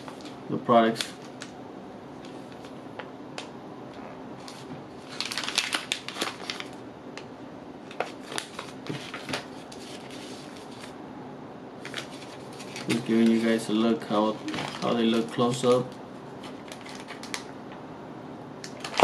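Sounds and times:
plastic wrapper crinkling: 4.4s - 6.8s, 7.8s - 10.9s, 11.8s - 13.4s, 14.5s - 17.5s, 18.6s - 19.0s.

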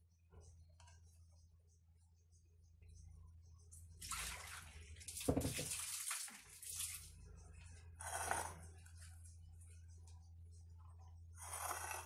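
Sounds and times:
water running in a sink: 4.0s - 7.2s.

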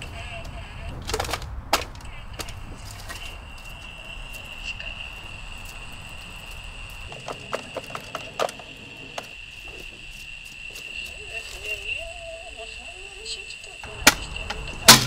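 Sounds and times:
steady high-pitched drone: 0.0s - 15.0s
plastic and metal objects clattering: 1.0s - 3.3s, 7.1s - 9.4s.

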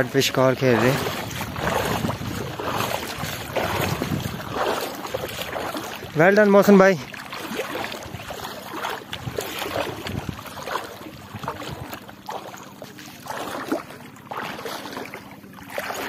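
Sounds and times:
shallow water sloshing and lapping: 0.0s - 16.0s
wind on microphone: 0.7s - 6.2s, 7.8s - 12.0s.

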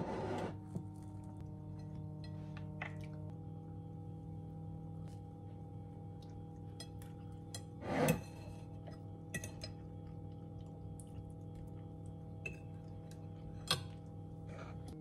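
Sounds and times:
fork scraping: 7.8s - 8.6s.

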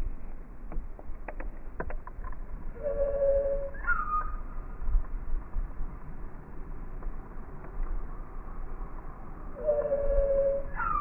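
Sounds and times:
steady low rumble: 0.0s - 11.0s
slowed bird call: 2.8s - 4.5s, 9.6s - 11.0s.

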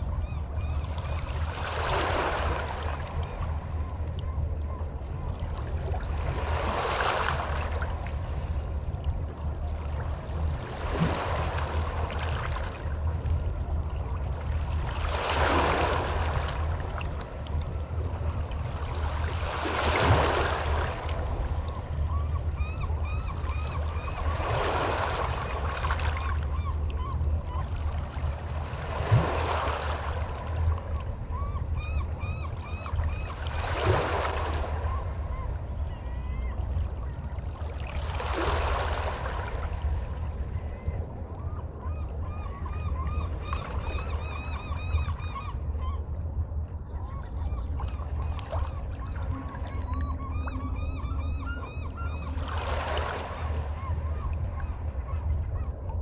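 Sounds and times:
water birds calling: 0.0s - 56.0s.

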